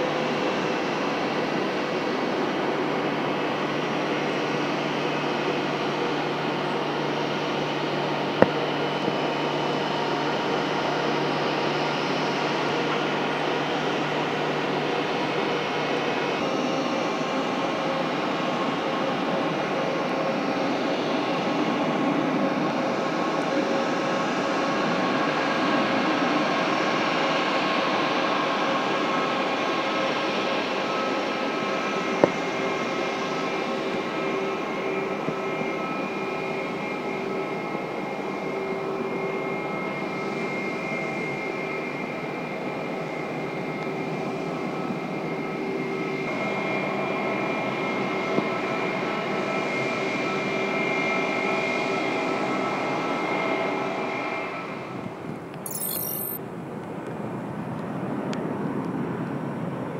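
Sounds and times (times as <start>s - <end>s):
sharp click: 55.7s - 56.4s.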